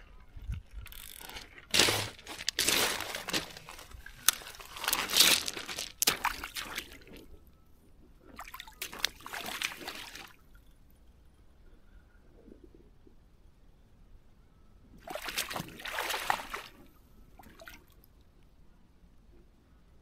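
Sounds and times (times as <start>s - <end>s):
boots wading through shallow water: 1.4s - 7.3s, 8.4s - 10.4s, 15.0s - 16.8s.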